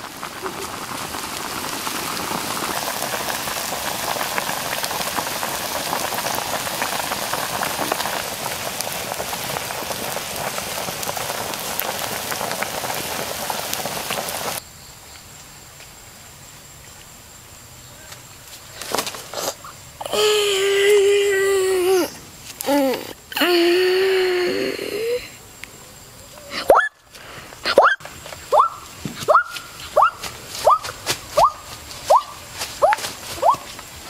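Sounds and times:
sauce sizzling in frying pan: 0:00.0 - 0:14.6.

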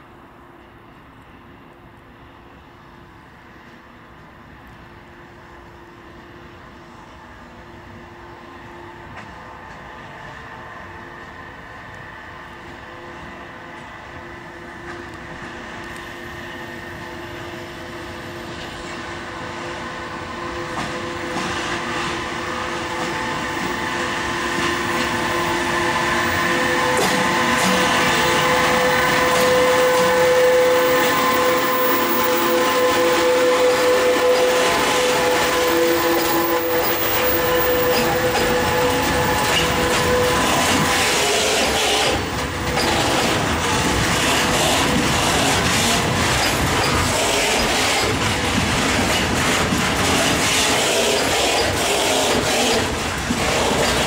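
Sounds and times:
freight train passing: 0:00.0 - 0:54.0
high whine: 0:20.2 - 0:48.4.

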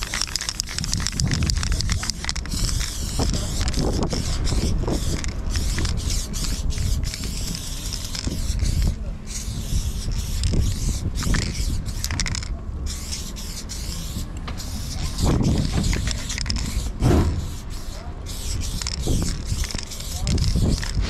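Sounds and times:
spray paint can hissing: 0:00.0 - 0:21.0
loud thumps: 0:15.2 - 0:17.7.

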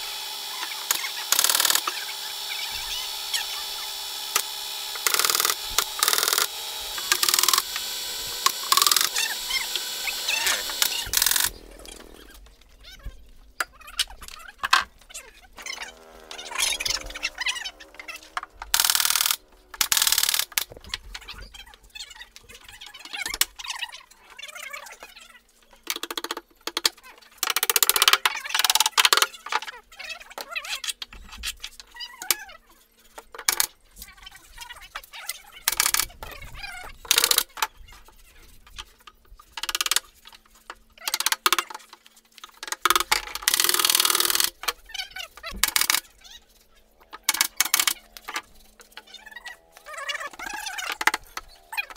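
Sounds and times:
nail gun firing: 0:00.0 - 0:12.0, 0:42.9 - 0:44.5.

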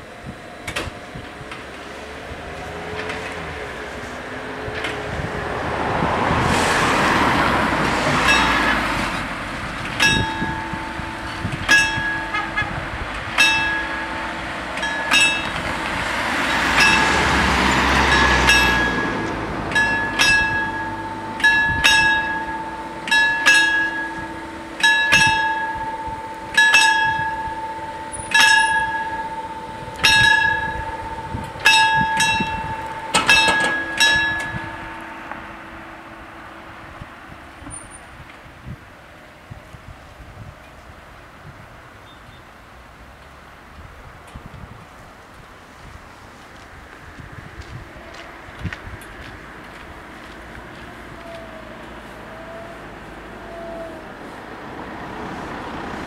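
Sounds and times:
road vehicles passing: 0:00.0 - 0:56.0
level crossing bells ringing: 0:07.0 - 0:38.2.

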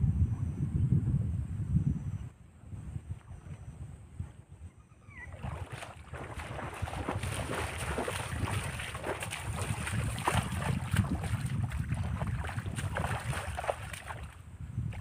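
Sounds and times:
wind rumble on microphone: 0:00.0 - 0:15.0
water splashing: 0:05.3 - 0:15.0.

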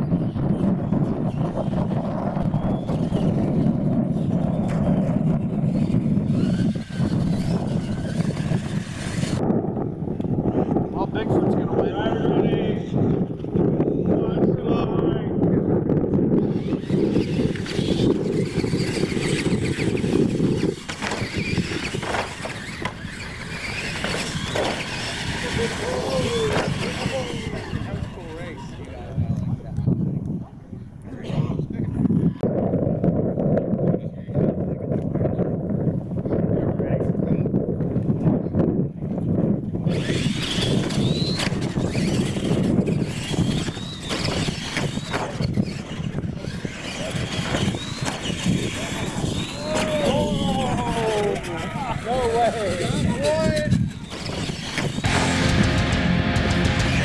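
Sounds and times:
toy truck motors whining: 0:00.1 - 0:09.4, 0:16.3 - 0:29.3, 0:39.8 - 0:55.5
tyres scrabbling on dirt: 0:16.5 - 0:28.8, 0:39.9 - 0:50.0
low rumble: 0:55.0 - 0:57.0.

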